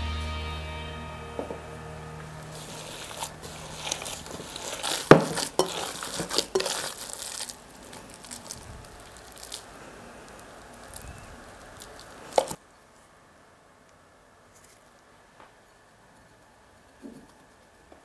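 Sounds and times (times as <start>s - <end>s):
gloves crinkling: 2.2s - 12.6s
wet squishing of meat: 2.5s - 12.6s.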